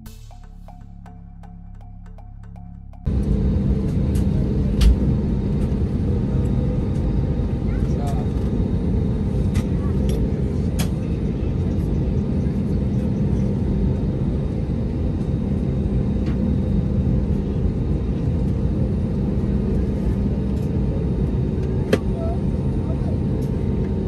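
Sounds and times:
aircraft cabin rumble: 0:02.5 - 0:24.0.

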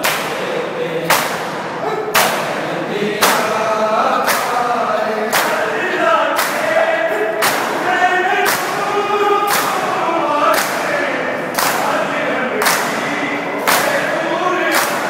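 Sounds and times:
men chanting a lament: 0:00.0 - 0:15.0
men slapping chests in unison: 0:00.0 - 0:15.0.

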